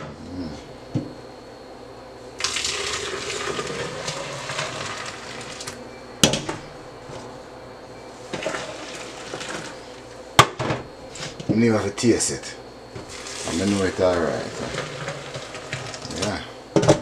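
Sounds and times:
juice pouring: 0:02.4 - 0:05.8, 0:13.1 - 0:16.1.

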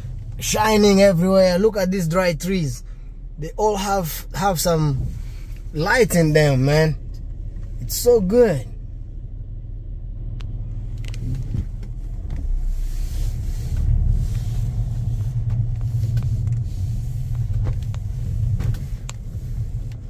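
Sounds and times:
car engine and tyres rumbling: 0:00.0 - 0:20.0.

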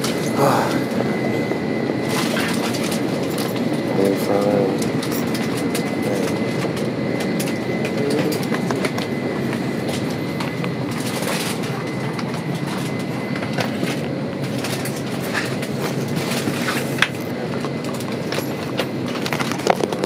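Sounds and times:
rushing air-system noise: 0:00.0 - 0:03.3
thin high whine: 0:00.0 - 0:20.0.

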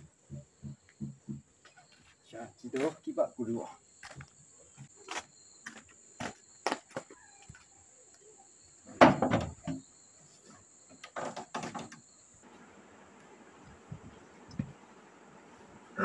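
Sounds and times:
footsteps on porch: 0:00.0 - 0:03.1, 0:04.0 - 0:08.3, 0:08.9 - 0:14.9
wooden door knocking open: 0:00.3 - 0:01.5, 0:09.0 - 0:09.8.

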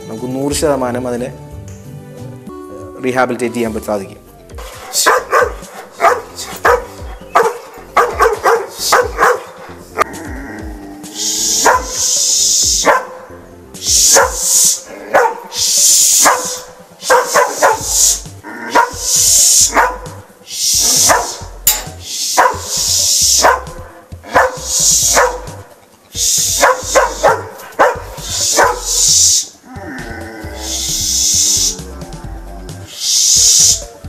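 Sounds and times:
music playing: 0:00.0 - 0:34.0
dog barking: 0:04.6 - 0:10.1, 0:11.5 - 0:13.3, 0:14.0 - 0:25.7, 0:26.4 - 0:29.1.

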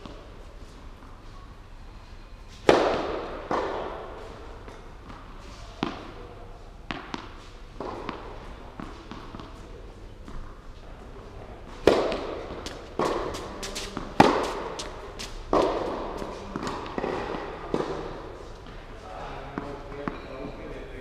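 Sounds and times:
tennis ball bouncing: 0:02.6 - 0:04.1, 0:04.7 - 0:06.2, 0:06.9 - 0:09.6, 0:11.7 - 0:18.8
racket hitting tennis ball: 0:02.6 - 0:06.2, 0:06.9 - 0:10.6, 0:11.6 - 0:18.8.

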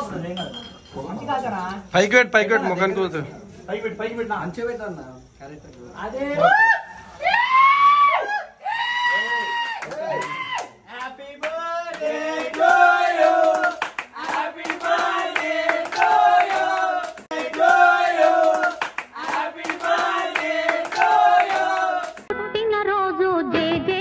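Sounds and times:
hands clapping: 0:09.6 - 0:22.3
young men singing together: 0:11.0 - 0:22.3.

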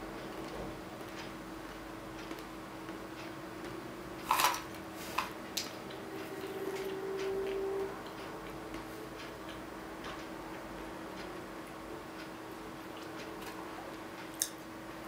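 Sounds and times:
steady low hum: 0:00.0 - 0:15.0
peanuts rattling in metal can: 0:04.3 - 0:04.6.

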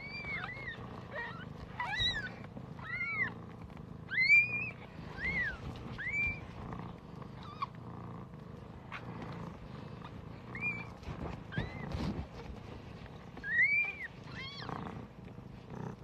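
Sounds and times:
kittens mewing: 0:00.0 - 0:03.4
cat purring: 0:00.0 - 0:16.0.

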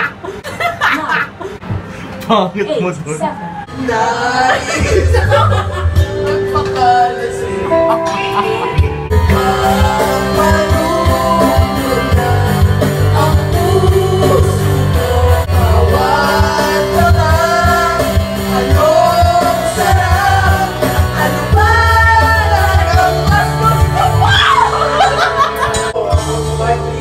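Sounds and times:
pop-rock backing track: 0:03.8 - 0:27.0
woman singing into microphone: 0:18.7 - 0:24.7.

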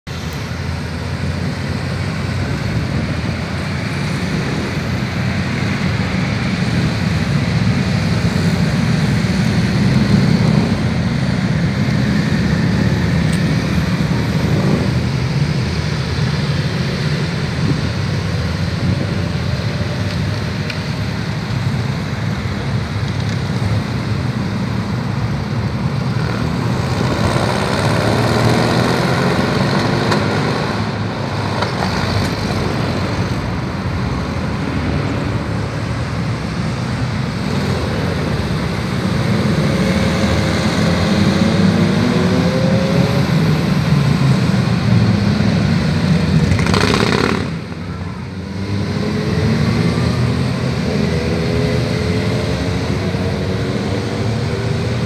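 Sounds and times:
motorcycles riding past: 0:37.0 - 0:55.0.

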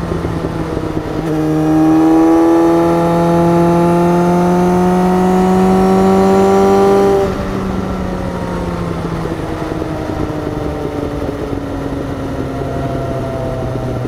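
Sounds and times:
motorcycle engine coasting: 0:00.0 - 0:14.0.

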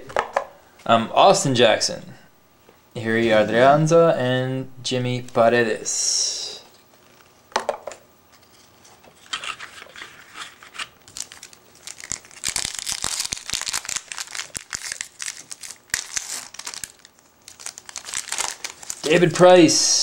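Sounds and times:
foil wrapper crinkling: 0:08.3 - 0:19.4
foil wrapper tearing: 0:08.4 - 0:19.3.

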